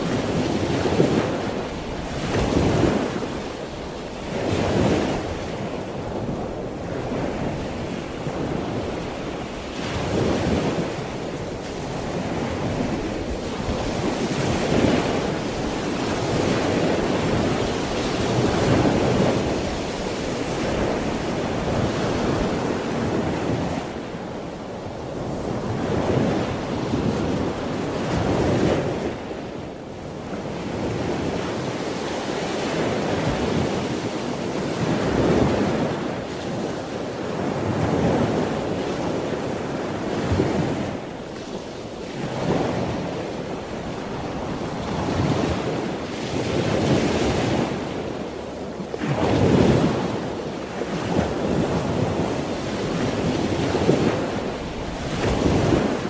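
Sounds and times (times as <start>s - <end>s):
waves breaking on a beach: 0.0s - 56.0s.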